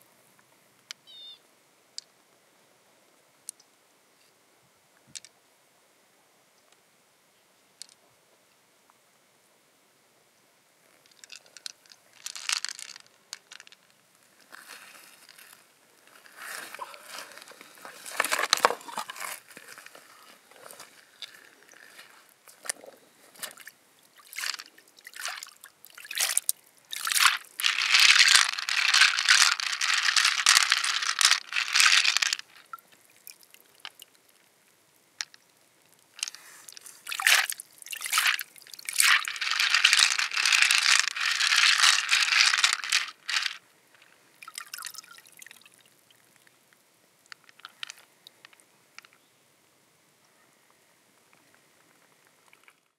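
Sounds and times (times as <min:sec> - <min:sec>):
water sloshing and splashing: 0:16.5 - 0:19.8, 0:23.3 - 0:34.1, 0:36.7 - 0:43.6
water dripping: 0:23.6 - 0:34.5, 0:35.2 - 0:40.2, 0:44.4 - 0:46.6.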